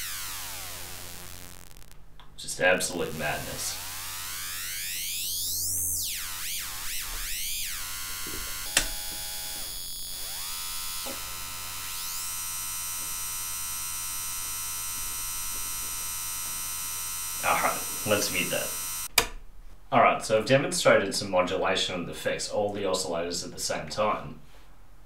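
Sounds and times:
synthesizer tone sweeping: 0.0s - 2.0s, 2.8s - 19.1s.

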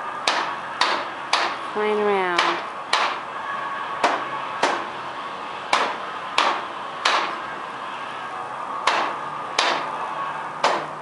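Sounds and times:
hammer strikes with ringing: 8.9s - 9.9s.

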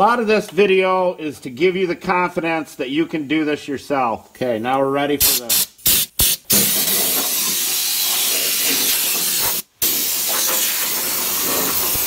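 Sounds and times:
spray gun hissing: 5.2s - 12.0s.

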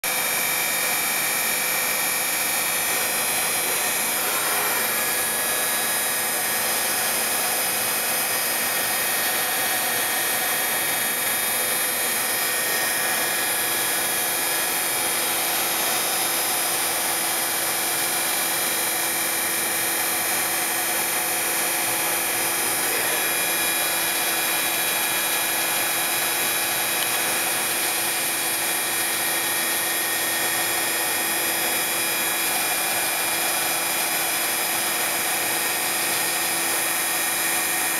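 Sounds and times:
sanding machinery hiss: 2.9s - 7.7s.

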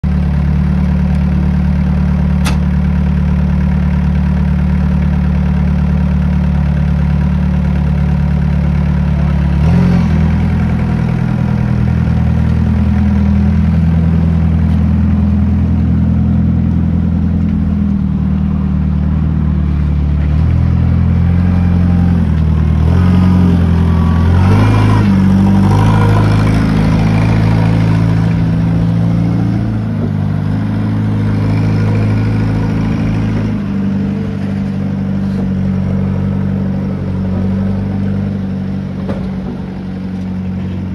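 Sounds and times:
engine idling and revving: 0.0s - 40.9s
sharp click: 2.4s - 2.7s.

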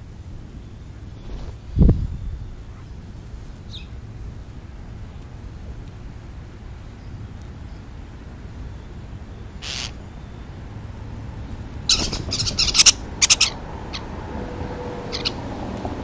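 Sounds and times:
starlings harsh scratchy calls: 9.6s - 10.1s, 11.8s - 14.2s, 15.1s - 15.5s.

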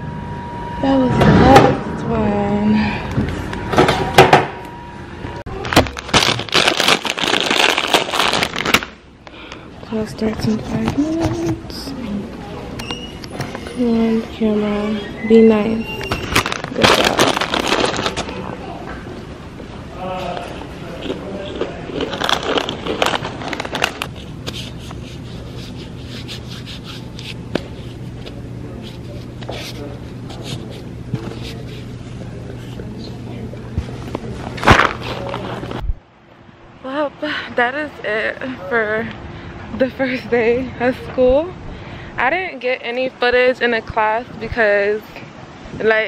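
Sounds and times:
low steady hum: 0.0s - 46.0s
crackling rustle of handling: 20.4s - 32.8s, 33.8s - 35.8s.

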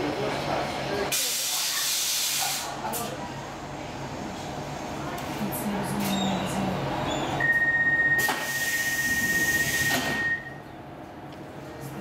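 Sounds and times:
high warning beep: 7.4s - 10.6s
sliding doors hissing closed: 8.2s - 10.3s.

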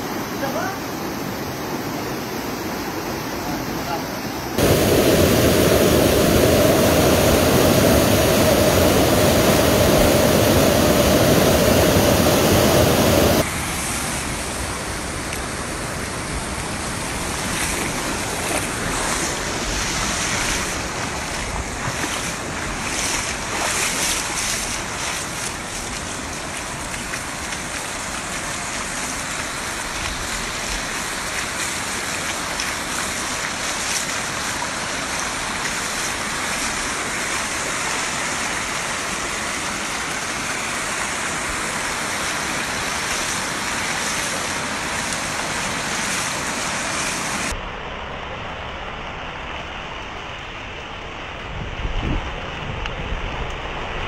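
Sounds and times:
rushing water: 0.0s - 54.0s
wind: 0.0s - 54.0s
tyres splashing through water: 16.4s - 47.5s.

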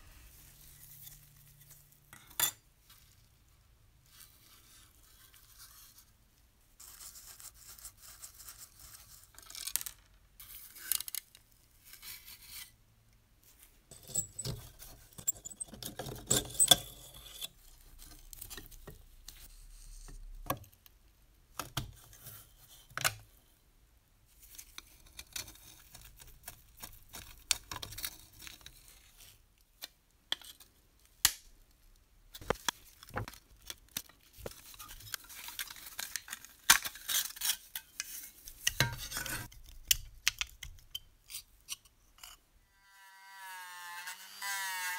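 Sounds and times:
screwdriver scraping metal: 13.9s - 17.6s.

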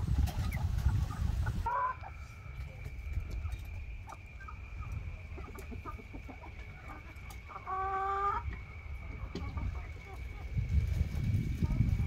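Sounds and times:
chickens clucking: 0.0s - 12.0s
chicken drawn-out call: 0.2s - 2.5s, 4.0s - 10.6s.

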